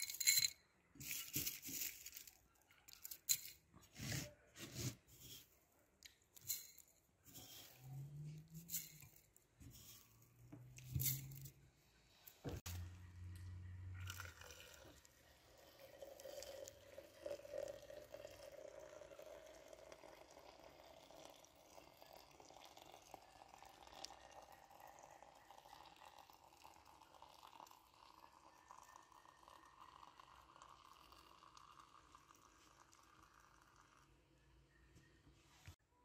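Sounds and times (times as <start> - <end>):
water pouring into a teapot: 14.0 - 34.3.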